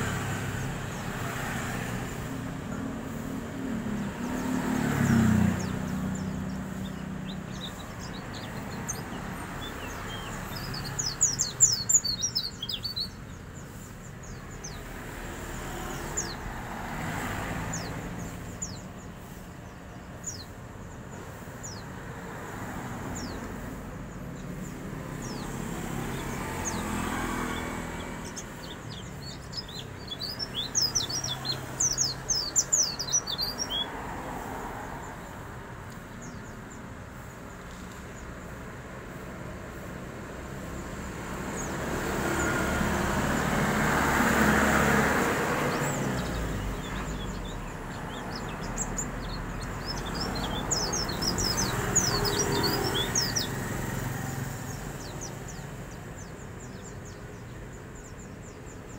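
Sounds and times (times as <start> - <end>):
songbird twittering: 3.8 - 22.1, 23.0 - 23.6, 24.2 - 34.1, 44.2 - 58.9.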